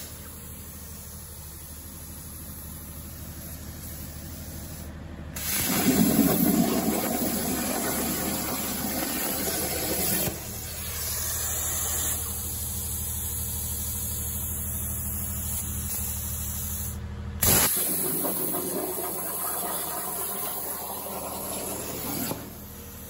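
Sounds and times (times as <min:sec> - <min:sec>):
plasma torch hissing: 0:00.0 - 0:23.0.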